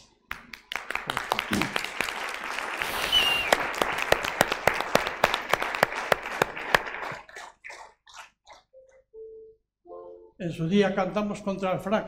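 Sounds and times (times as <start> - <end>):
audience applauding: 0.3 - 8.7
short high whistle: 3.0 - 3.6.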